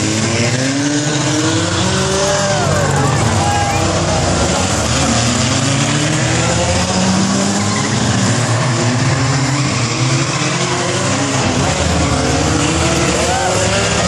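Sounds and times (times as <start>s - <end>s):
stock car engines revving: 0.0s - 14.0s.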